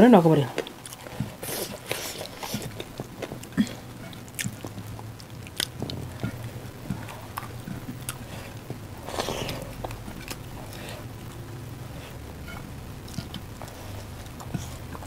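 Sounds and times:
chewing and lip smacks: 0:00.6 - 0:11.1.

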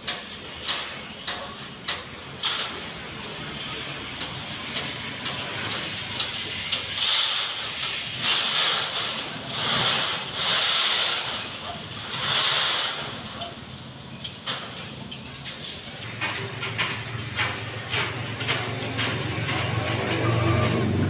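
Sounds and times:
street traffic engine rumble: 0:00.0 - 0:21.0
short hissing bursts: 0:12.2 - 0:13.2.

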